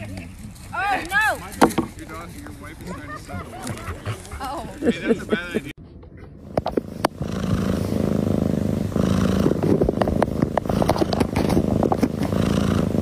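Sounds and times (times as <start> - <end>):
cat purring: 6.4 - 13.0.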